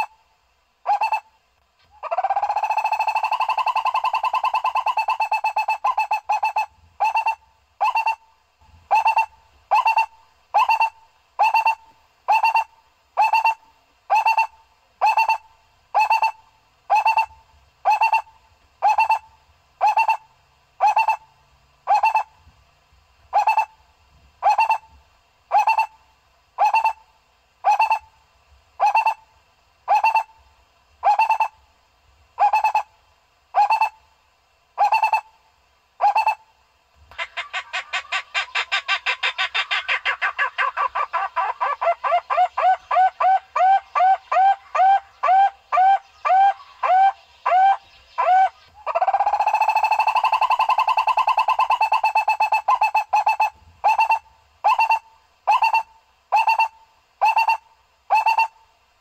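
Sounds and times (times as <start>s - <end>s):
fast dense bird trill: 37.2s - 52.2s.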